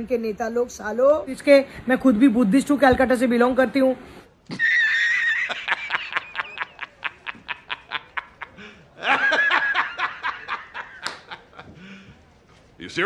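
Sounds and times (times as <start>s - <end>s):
man laughing hard: 4.5s - 11.7s.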